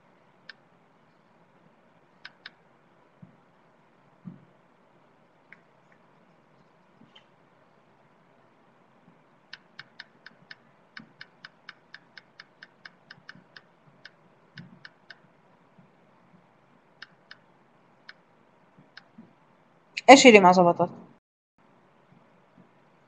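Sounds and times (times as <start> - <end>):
computer mouse clicking: 2.2 - 2.6, 9.5 - 15.3, 17.0 - 18.2, 18.8 - 19.2.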